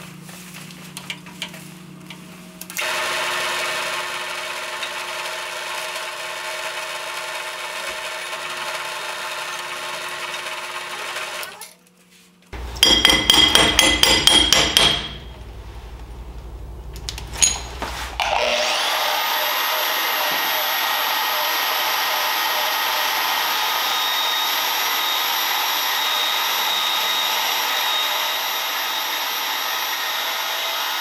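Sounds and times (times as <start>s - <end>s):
drill press cutting steel: 2.7s - 11.7s.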